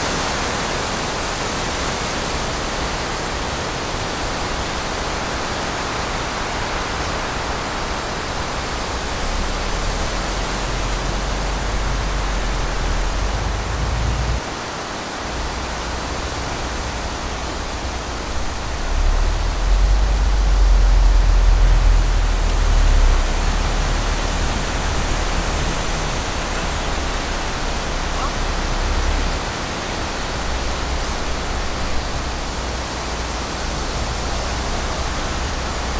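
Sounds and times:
vehicle noise inside vehicle: 0:00.0 - 0:35.9
wind rumble on microphone: 0:07.7 - 0:14.5, 0:15.3 - 0:35.9.

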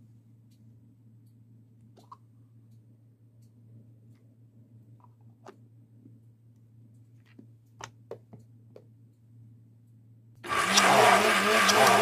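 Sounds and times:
toy mixer motor whirring: 0:10.5 - 0:12.0.

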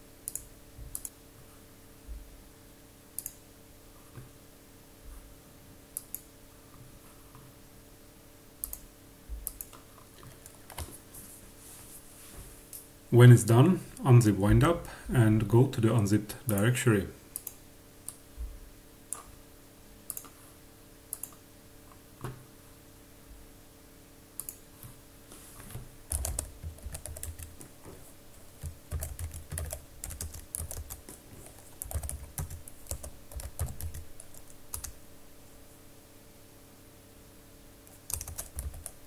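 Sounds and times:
faint steady hum: 0:00.0 - 0:39.0
typing on computer keyboard: 0:10.4 - 0:10.9, 0:26.1 - 0:27.8, 0:28.6 - 0:35.0, 0:37.9 - 0:39.0.

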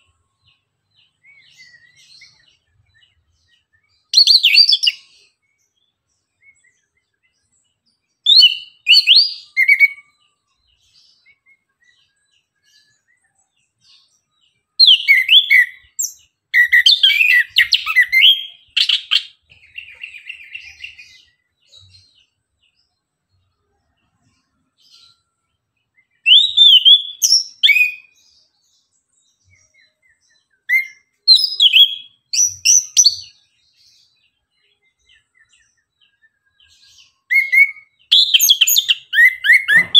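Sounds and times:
thrush singing whistled phrases: 0:08.3 - 0:10.1, 0:14.8 - 0:21.4, 0:26.1 - 0:28.2, 0:30.6 - 0:33.3, 0:37.2 - 0:39.9.

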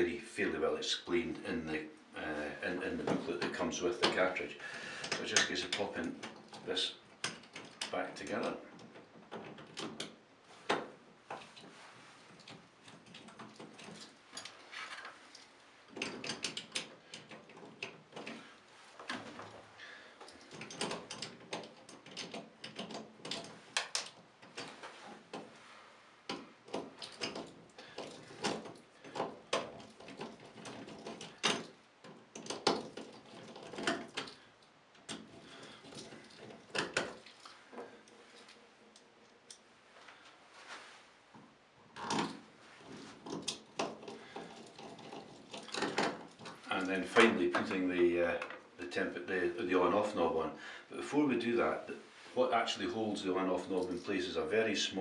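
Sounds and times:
plastic parts clicking and rattling: 0:04.9 - 0:25.6, 0:26.2 - 0:39.7, 0:41.9 - 0:48.7.

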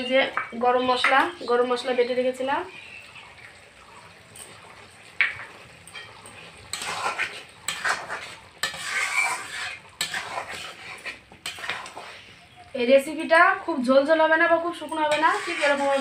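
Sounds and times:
light sizzle: 0:00.0 - 0:16.0
spatula scraping a metal pan: 0:05.9 - 0:12.6, 0:14.9 - 0:16.0.

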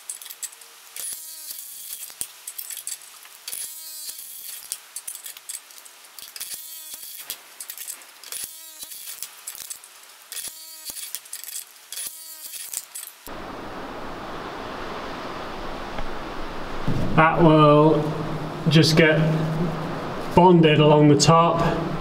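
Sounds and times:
impact wrench bursts: 0:00.0 - 0:05.6, 0:06.2 - 0:13.3.

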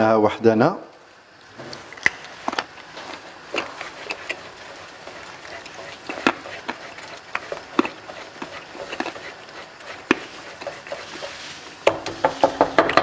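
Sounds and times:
wooden spatula scraping a wok: 0:02.9 - 0:13.0.

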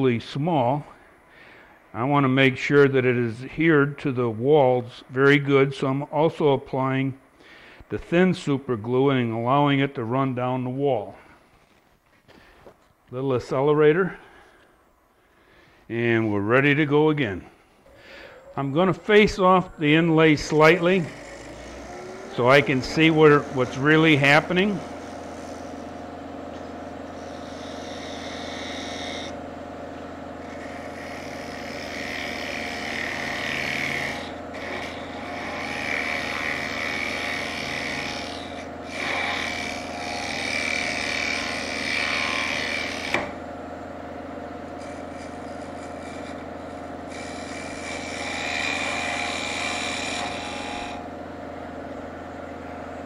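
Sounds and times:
wood lathe humming: 0:15.3 - 0:53.0
turning tool rasping wood: 0:19.9 - 0:43.5, 0:44.6 - 0:51.1.

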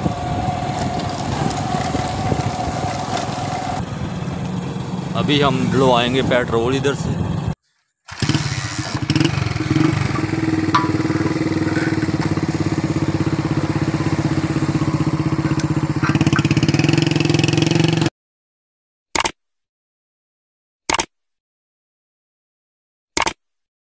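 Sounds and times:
motorcycle engine idling: 0:00.0 - 0:07.6, 0:08.2 - 0:17.5
short click: 0:19.2 - 0:19.4, 0:20.9 - 0:21.1, 0:23.2 - 0:23.4.

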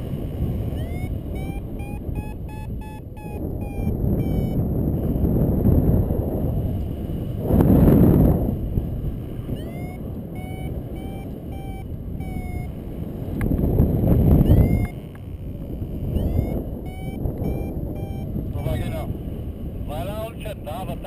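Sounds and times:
variometer beeping: 0:00.0 - 0:06.1, 0:09.2 - 0:19.2
wind buffeting microphone: 0:00.0 - 0:21.0.

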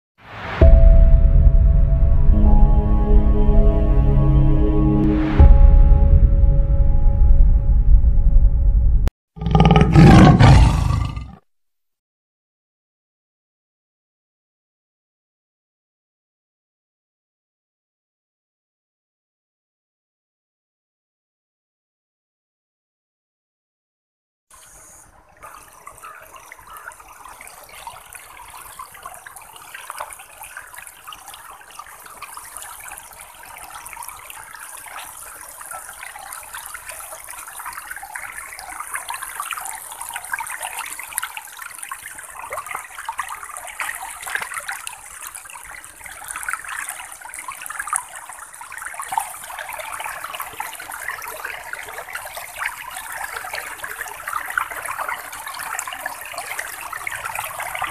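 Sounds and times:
shallow water rushing: 0:24.7 - 0:57.9.

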